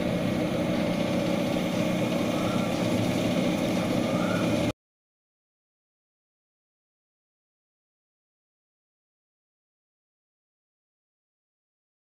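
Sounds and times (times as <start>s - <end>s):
computer fans and drives whirring: 0.0s - 4.8s.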